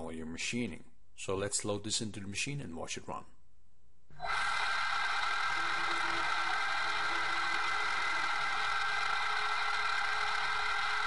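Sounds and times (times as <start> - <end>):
milling machine whir: 4.2 - 11.0.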